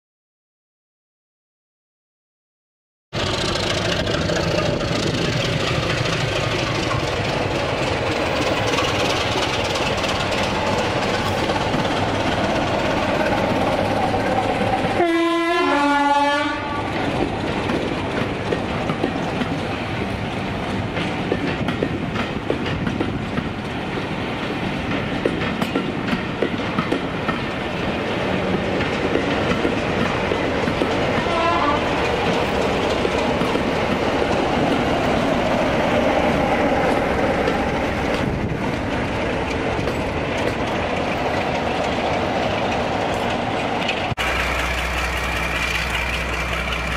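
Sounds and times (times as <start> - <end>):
train wheels clicking over rail joints: 3.2 - 15.0, 16.5 - 46.9
two-tone locomotive horn: 15.0 - 17.0, 31.2 - 32.0.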